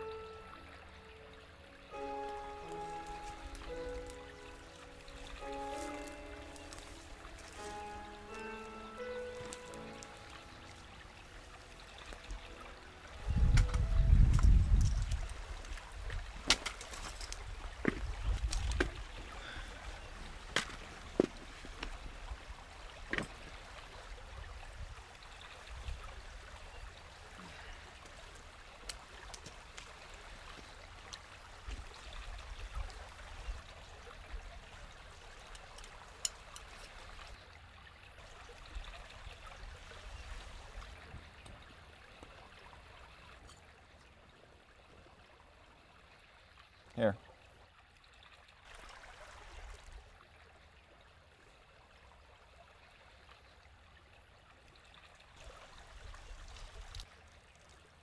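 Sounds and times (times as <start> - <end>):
stream trickling: 0.0 - 58.0.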